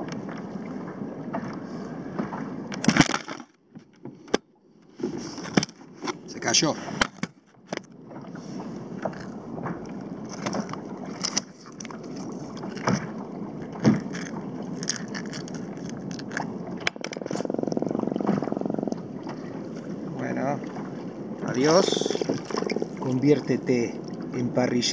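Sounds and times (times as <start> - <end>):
fish croaking: 5.9 - 24.9.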